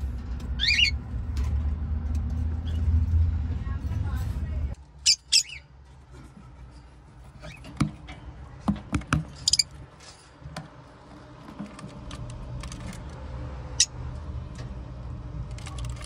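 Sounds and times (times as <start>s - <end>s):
knocks and clicks against wood: 7.6s - 9.4s.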